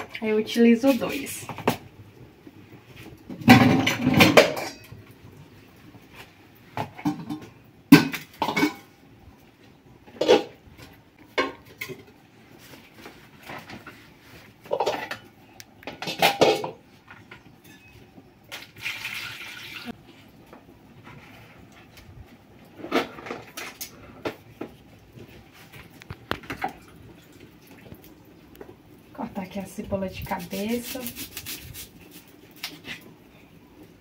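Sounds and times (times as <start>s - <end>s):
pots and pans clattering: 3.2s - 5.2s, 6.7s - 9.0s, 10.0s - 12.2s, 14.6s - 19.9s.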